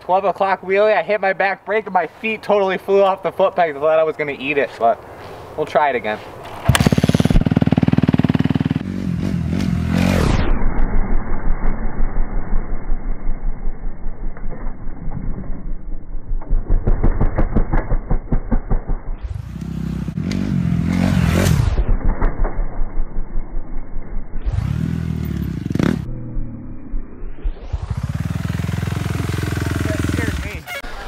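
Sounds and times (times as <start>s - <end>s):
dirt bike engine revving: 6.4s - 10.5s, 19.2s - 22.2s, 24.4s - 26.8s, 27.5s - 31.0s.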